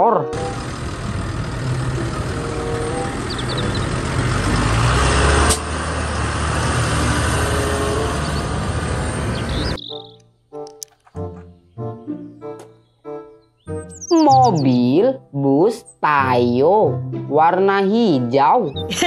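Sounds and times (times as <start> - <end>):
tractor diesel engine rumbling: 0.0 - 9.8
click: 10.1 - 11.2.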